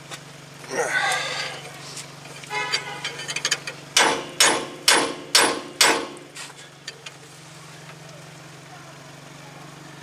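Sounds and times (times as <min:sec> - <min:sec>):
sledgehammer ringing blows on metal: 0:04.0 - 0:06.2.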